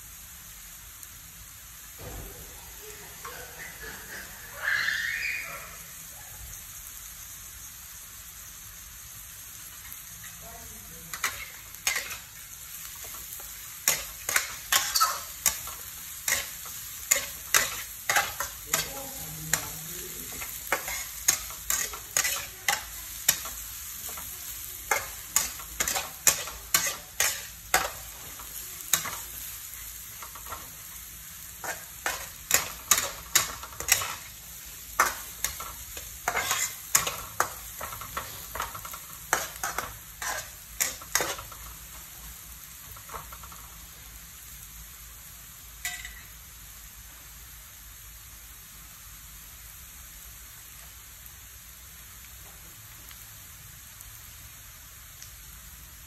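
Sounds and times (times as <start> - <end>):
food sizzling: 0.0 - 56.0
metal spatula scraping a wok: 11.1 - 12.4, 13.8 - 24.2, 24.9 - 29.3, 31.6 - 34.4, 35.0 - 41.7.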